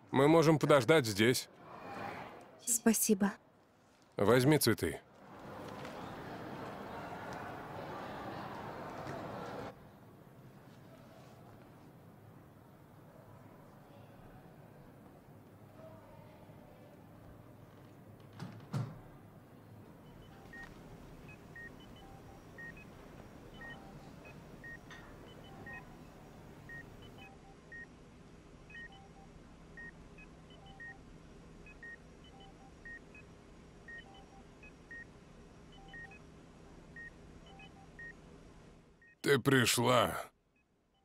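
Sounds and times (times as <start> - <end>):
patient monitor beeping: 20.0 - 27.9, 28.7 - 31.0, 31.7 - 33.3, 33.9 - 35.1, 35.7 - 36.2, 37.0 - 38.2.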